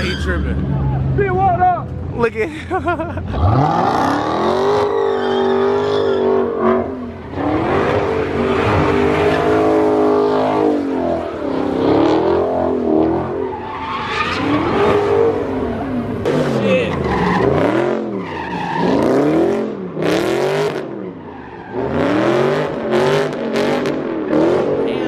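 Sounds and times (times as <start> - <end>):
tyres squealing on pavement: 0.0 - 1.0, 4.5 - 7.4, 8.0 - 19.3, 20.8 - 22.3
car engine revving high: 3.3 - 25.0.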